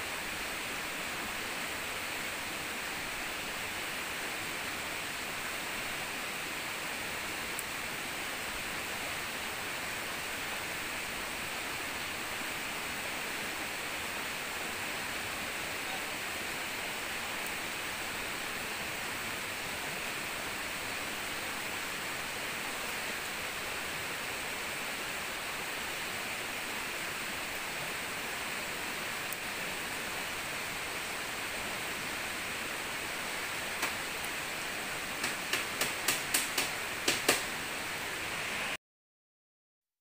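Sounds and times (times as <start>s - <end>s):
river water rushing: 0.0s - 38.8s
sharp knocks: 35.2s - 37.5s.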